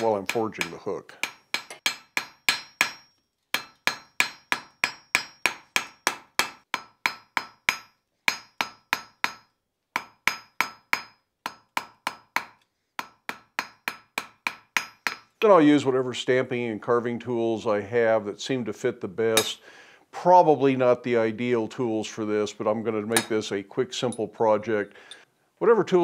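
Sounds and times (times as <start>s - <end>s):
anvil ringing: 0.0s - 11.2s, 23.1s - 23.5s
hammer striking hot steel: 0.0s - 15.3s, 19.4s - 19.6s, 23.2s - 23.4s.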